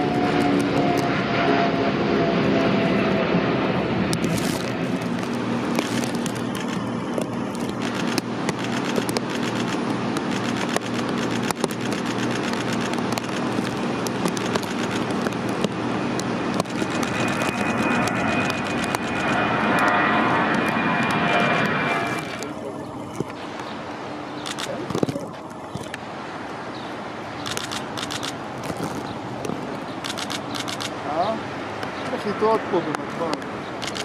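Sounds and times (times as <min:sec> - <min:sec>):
high engine whine: 0:00.0 - 0:34.0
jet engines roaring: 0:00.0 - 0:34.0.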